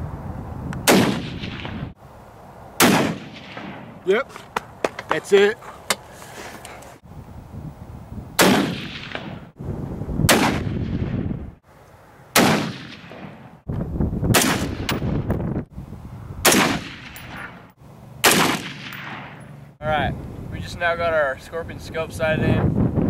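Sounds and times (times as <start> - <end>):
rifle shots with echo: 0.9 - 2.0, 2.8 - 3.9, 8.4 - 9.5, 10.3 - 11.1, 12.4 - 13.5, 14.3 - 15.0, 16.4 - 17.6, 18.2 - 19.6.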